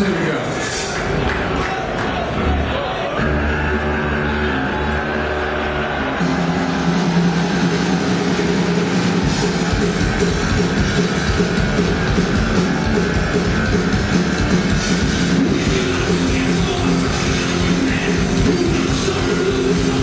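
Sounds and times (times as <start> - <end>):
drums: 0.0 - 20.0
distorted electric guitars: 2.3 - 20.0.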